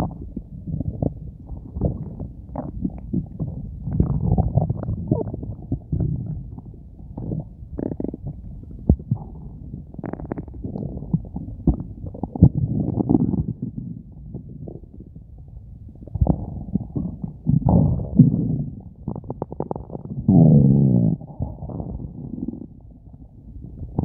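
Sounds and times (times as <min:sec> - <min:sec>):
stomach growling: 0:00.0 - 0:24.0.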